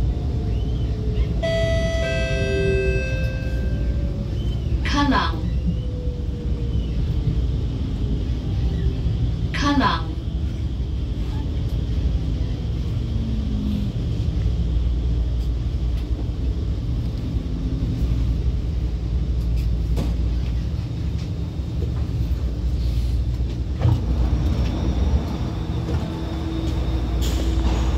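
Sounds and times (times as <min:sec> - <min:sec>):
metro train rumble: 0:00.0 - 0:27.9
train doors opening clunk: 0:23.8 - 0:27.9.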